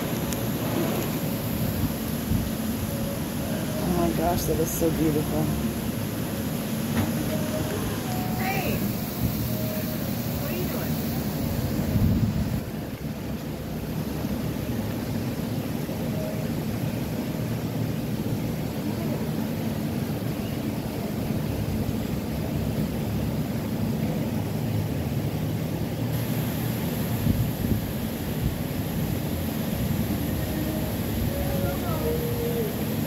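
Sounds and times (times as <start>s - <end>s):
bright hiss: 0.0s - 16.4s, 26.1s - 33.0s.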